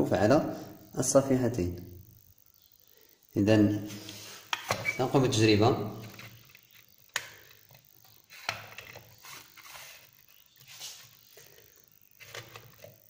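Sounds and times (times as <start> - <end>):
faint handling noises: 3.9 - 13.0.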